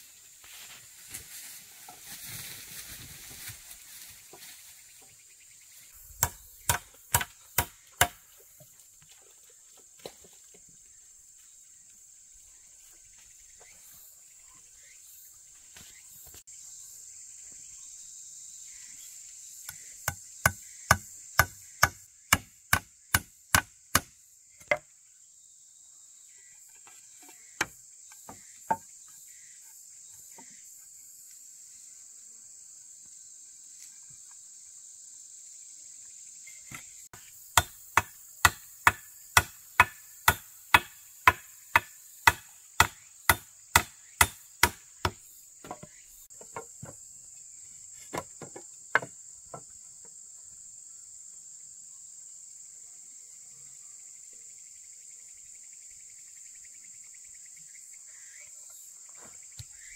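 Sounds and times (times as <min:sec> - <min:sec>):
insects droning: 0:00.0 - 0:59.9
hand tool striking wood: 0:06.2 - 0:08.2, 0:19.7 - 0:24.8, 0:26.9 - 0:28.9, 0:37.6 - 0:47.0, 0:48.1 - 0:49.2.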